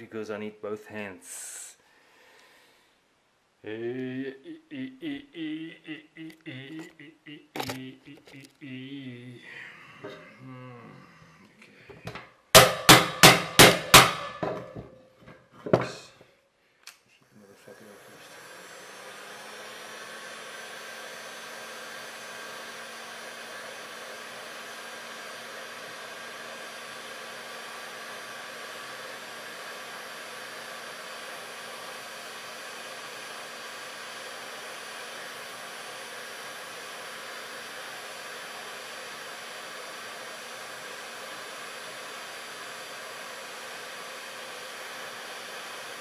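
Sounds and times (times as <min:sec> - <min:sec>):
heat gun blowing air: 0:05.9 - 0:08.5, 0:12.0 - 0:16.2, 0:17.6 - 0:46.0.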